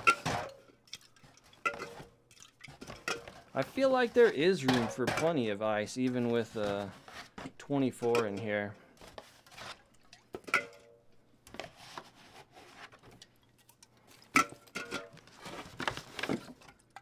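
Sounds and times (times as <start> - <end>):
cans knocking: 0.0 - 0.6, 2.7 - 8.6
metal cans clinking: 0.0 - 11.0, 13.0 - 17.0
cardboard rustling: 6.0 - 7.6, 15.2 - 16.6.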